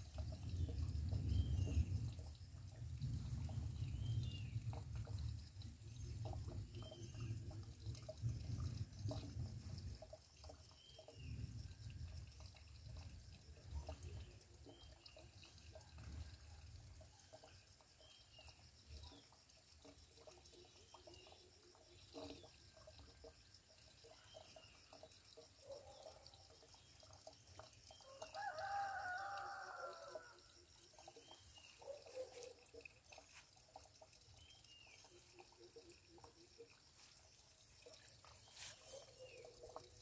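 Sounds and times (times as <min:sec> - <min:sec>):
faint rooster crowing: 0:28.0 - 0:30.6.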